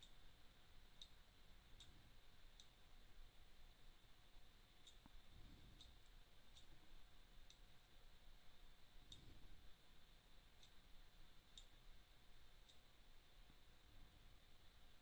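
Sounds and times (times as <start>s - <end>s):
computer mouse clicks: 9.1s - 9.4s.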